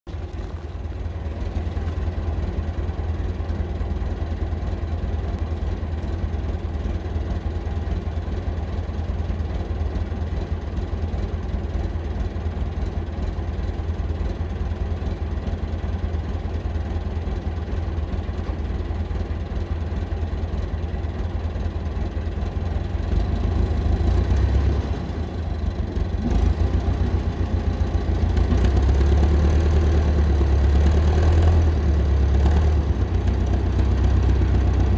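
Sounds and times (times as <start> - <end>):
diesel engine running at low revs: 0.0 - 34.9.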